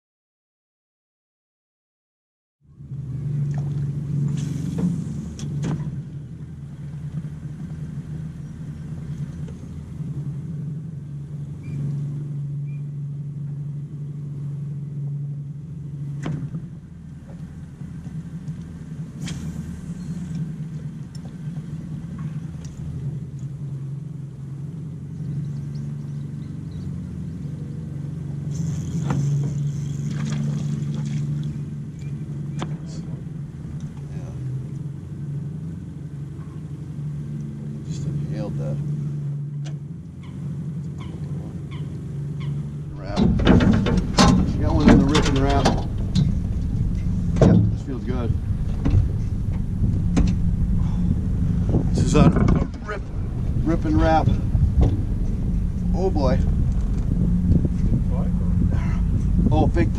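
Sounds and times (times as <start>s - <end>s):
boat motor humming: 2.6s - 59.9s
sharp clicks and knocks: 43.1s - 47.9s, 48.6s - 50.6s, 51.7s - 53.6s, 54.6s - 55.5s.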